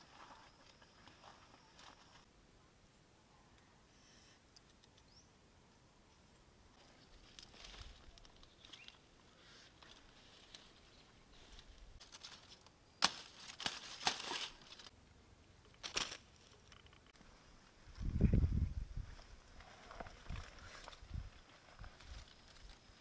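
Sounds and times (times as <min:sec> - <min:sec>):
dry leaves rustling and crackling: 0:06.8 - 0:09.0, 0:09.8 - 0:14.9, 0:15.7 - 0:16.7, 0:21.3 - 0:23.0.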